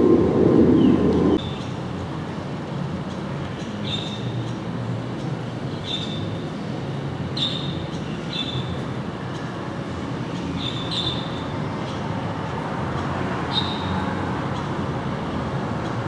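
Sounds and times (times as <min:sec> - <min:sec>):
jet airliner roaring overhead: 0:00.0 - 0:01.4.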